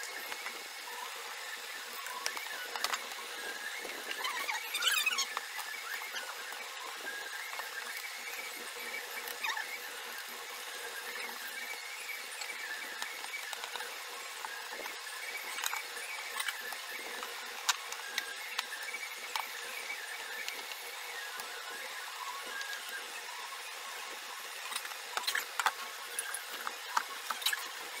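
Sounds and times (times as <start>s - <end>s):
high squeaky tones: 4.1s - 5.3s.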